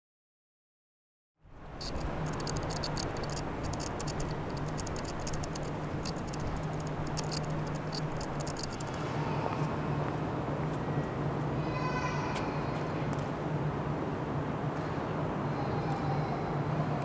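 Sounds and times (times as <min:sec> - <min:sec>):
low city hum: 0:01.4 - 0:17.0
light ticking and clicking: 0:01.8 - 0:09.0.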